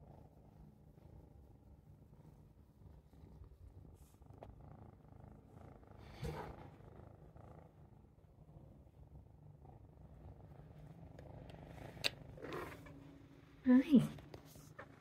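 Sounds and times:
cat purring: 0.0s - 15.0s.

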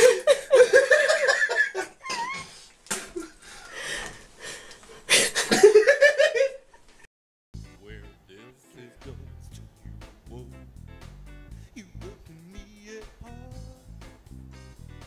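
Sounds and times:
person laughing hard: 0.0s - 3.4s, 5.1s - 6.6s.

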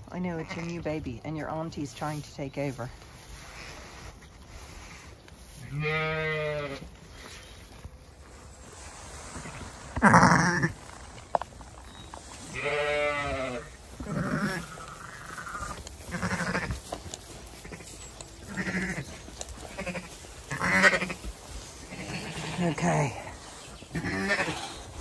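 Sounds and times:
sheep bleating: 5.6s - 6.9s, 12.5s - 16.9s, 17.6s - 23.2s, 23.9s - 24.9s.

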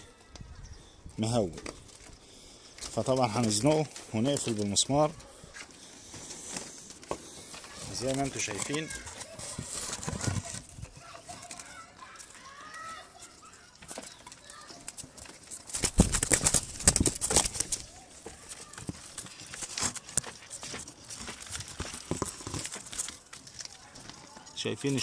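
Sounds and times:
bird wings flapping: 13.8s - 25.0s.

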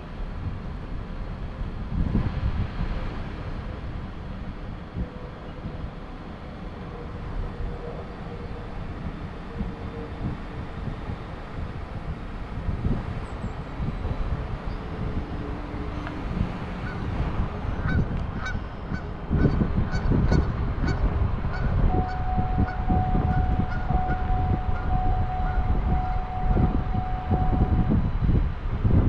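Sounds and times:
wind rumble on microphone: 0.0s - 29.0s
geese honking: 19.9s - 26.6s
faint steady tone: 21.8s - 28.6s.

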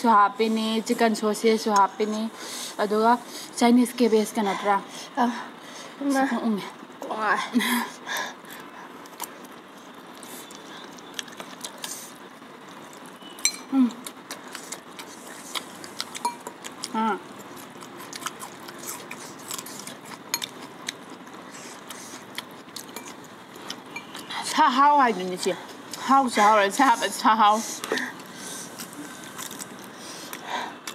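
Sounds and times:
spoon tapping glass bowl: 13.4s - 13.7s
chewing and slurping noodles: 14.3s - 24.3s.

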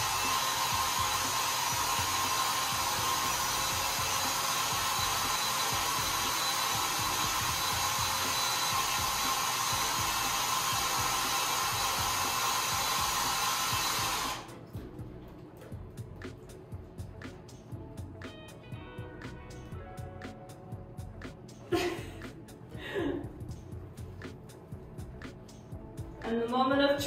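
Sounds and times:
power drill whirring: 0.0s - 14.5s.

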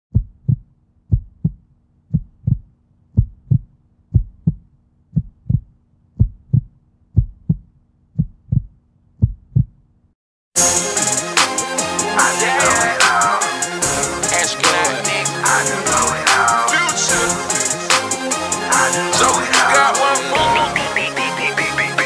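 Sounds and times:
heartbeat thumps: 0.1s - 9.8s
hip-hop music: 10.6s - 22.0s.

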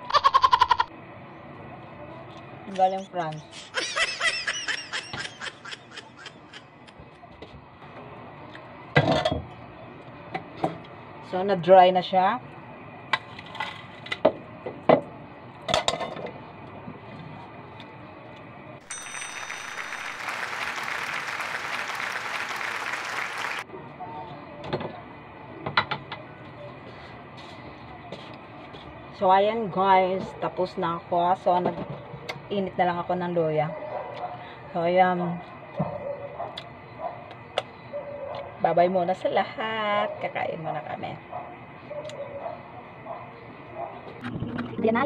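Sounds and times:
applause and cheering: 18.9s - 23.7s.

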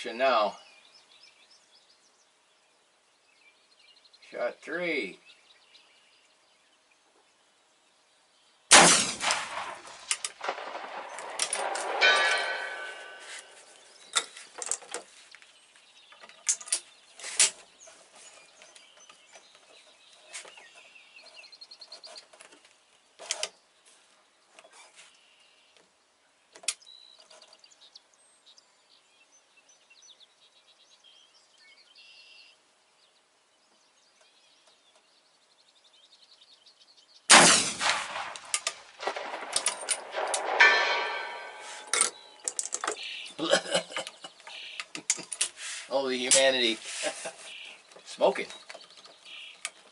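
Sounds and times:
rifle shots: 8.7s - 13.6s, 37.3s - 42.1s.

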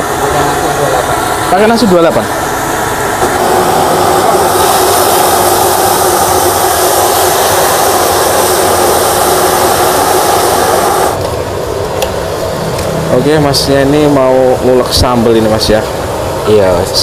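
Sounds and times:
gas burner rushing: 0.0s - 17.0s
hot oil sizzling in a wok: 2.6s - 11.2s.

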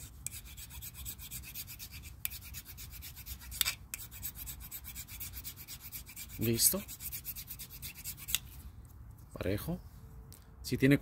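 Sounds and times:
hand file rasping: 0.0s - 8.6s.

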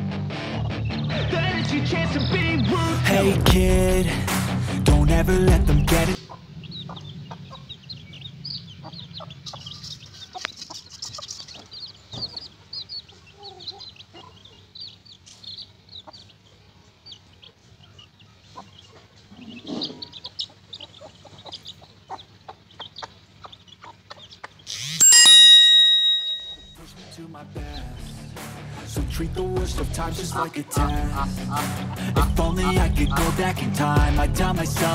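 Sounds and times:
chicks peeping: 0.0s - 4.1s, 4.9s - 26.8s, 27.6s - 34.9s
hen clucking: 6.1s - 25.3s, 29.7s - 33.5s.

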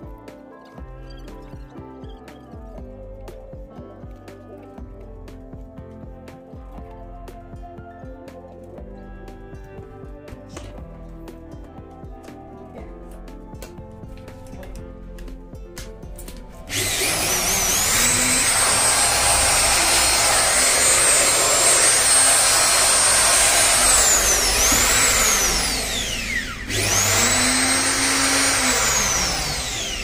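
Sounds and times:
wood router motor whining: 15.8s - 30.0s.

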